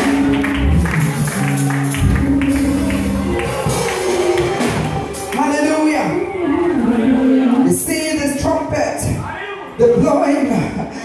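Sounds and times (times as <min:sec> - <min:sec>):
drum strikes: 0:00.0 - 0:07.1
live church band music: 0:00.0 - 0:09.2.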